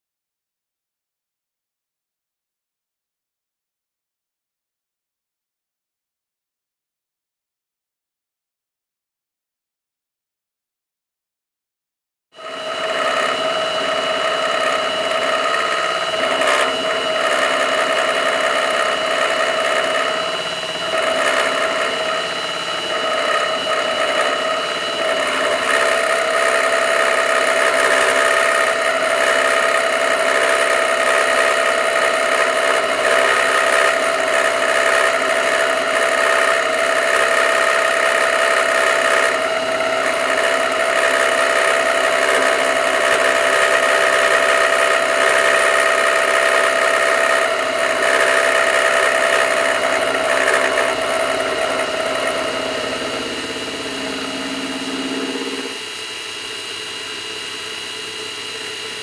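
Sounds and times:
milling machine cutting steel: 12.4s - 59.0s.

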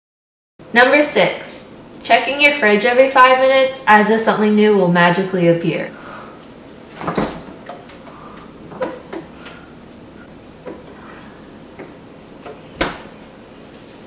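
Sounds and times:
refrigerator door shutting: 6.9s - 7.7s, 11.7s - 13.3s
refrigerator door opening: 6.9s - 8.0s, 8.6s - 9.6s, 10.6s - 13.4s.

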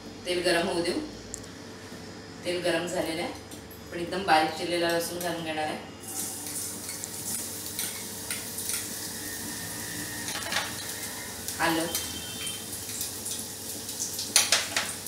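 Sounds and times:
garlic sizzling in hot oil: 6.0s - 15.0s.

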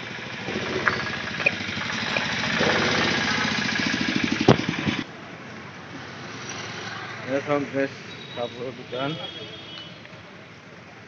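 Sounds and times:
vehicle engine running: 0.0s - 5.2s
street noise: 0.0s - 11.0s
sharp knock: 2.6s - 3.6s.

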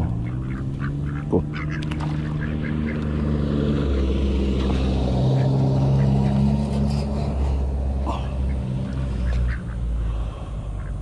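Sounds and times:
engine drone with held tones: 0.0s - 11.0s
faint duck quacks: 0.2s - 3.0s, 8.1s - 10.1s.

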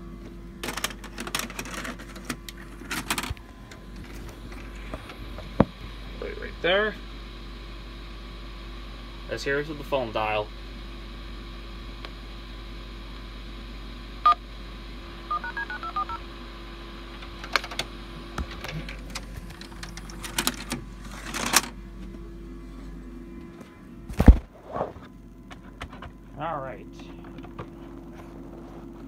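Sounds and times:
low hum: 14.1s - 29.0s
phone dialing tones: 15.3s - 16.2s.

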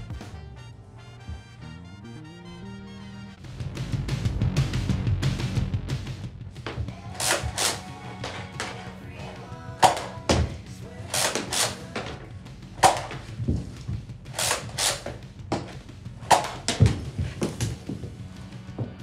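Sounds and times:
background music with steady beat: 0.0s - 19.0s
toy blaster firing thunks: 7.2s - 7.8s, 12.8s - 13.2s, 14.4s - 15.2s, 16.3s - 17.0s.

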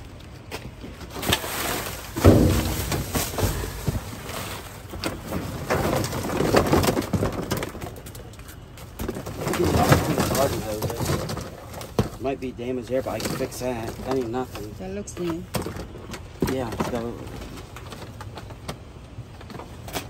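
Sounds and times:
plastic bags and cardboard rustling: 0.0s - 20.0s
garden hose dragged: 1.1s - 6.7s, 9.3s - 11.8s.

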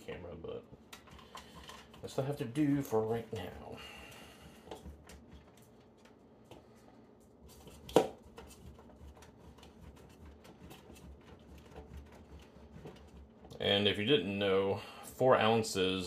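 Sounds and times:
cheese grater scraping: 7.5s - 13.6s.

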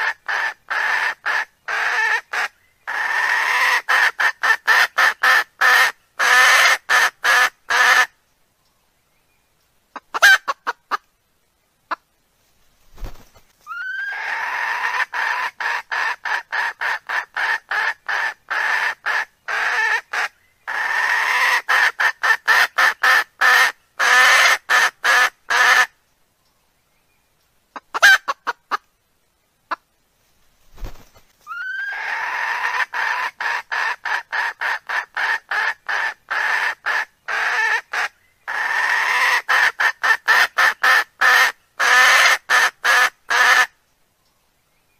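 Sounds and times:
recorded hen call: 0.0s - 8.2s, 9.9s - 11.0s, 13.7s - 25.9s, 27.7s - 28.9s, 31.4s - 43.8s
hen clucking rapidly: 10.0s - 11.0s, 13.1s - 25.9s, 27.8s - 28.8s, 30.8s - 43.7s.

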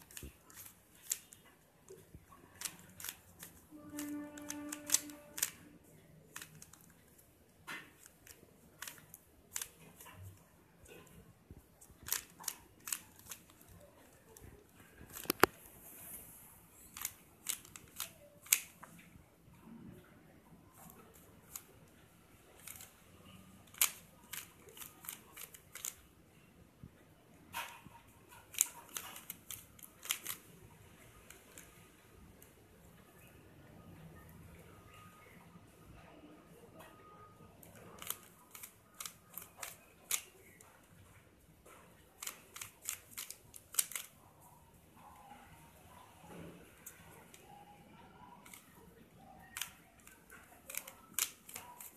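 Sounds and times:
plastic puzzle cube clicking: 0.0s - 5.6s, 6.2s - 7.2s, 7.8s - 10.2s, 11.8s - 15.6s, 16.8s - 18.9s, 22.6s - 23.0s, 23.6s - 26.1s, 28.4s - 30.6s, 37.6s - 40.6s, 42.2s - 44.2s, 48.4s - 48.8s, 49.4s - 51.9s.

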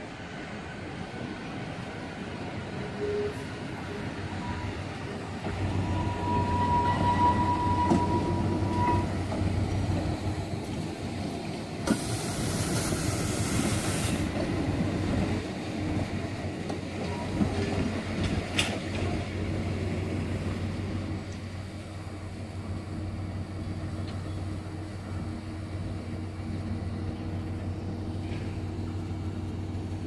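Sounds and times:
train wheel rumble: 0.0s - 30.0s
compressed air hiss: 11.8s - 14.3s.

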